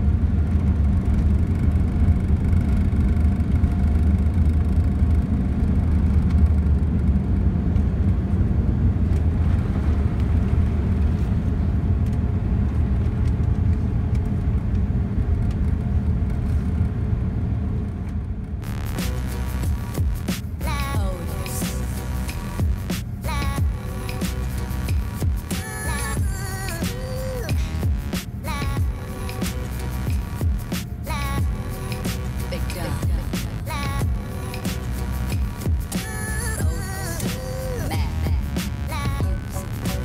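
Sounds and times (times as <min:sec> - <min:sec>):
aircraft cabin engine rumble: 0:00.0 - 0:40.0
music: 0:18.6 - 0:40.0.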